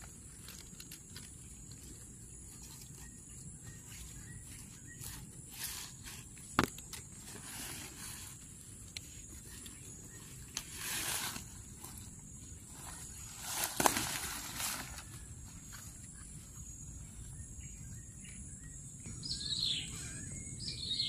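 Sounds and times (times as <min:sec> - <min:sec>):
dry grass rustling and crackling: 0:00.0 - 0:16.4.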